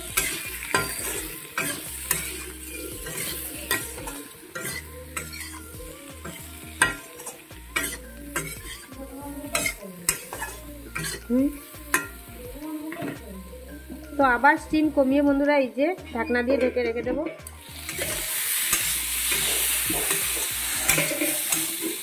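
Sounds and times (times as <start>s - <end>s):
metal spatula scraping a pan: 0.0s - 12.2s, 17.7s - 22.0s
vegetables sizzling in oil: 0.0s - 16.7s, 17.4s - 22.0s.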